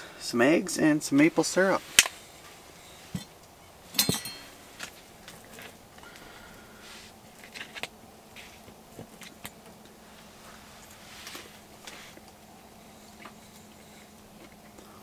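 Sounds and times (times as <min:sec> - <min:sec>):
utensil clinking on plate: 0:03.9 - 0:04.6.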